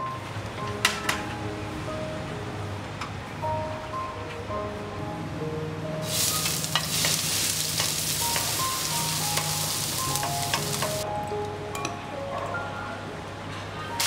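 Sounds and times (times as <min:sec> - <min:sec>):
shallots sizzling in hot oil: 0:06.0 - 0:11.0
wooden spatula scraping wok: 0:06.1 - 0:11.0.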